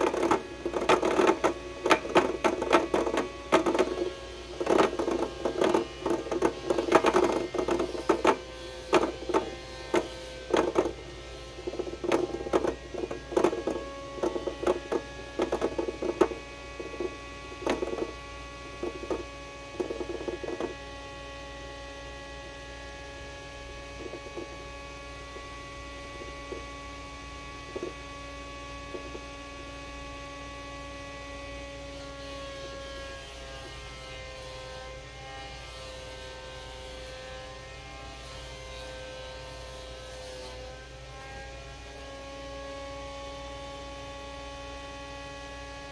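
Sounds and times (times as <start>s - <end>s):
gears clattering: 0.0s - 11.0s, 11.6s - 18.1s
steady hum: 0.0s - 35.7s.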